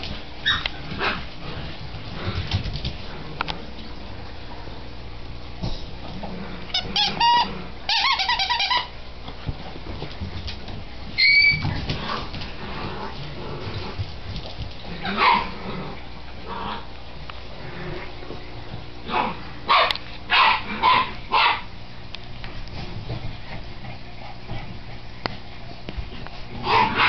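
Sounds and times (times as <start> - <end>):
puppy whining and squeaking: 0.4 - 0.7, 6.7 - 8.9, 11.2 - 11.8.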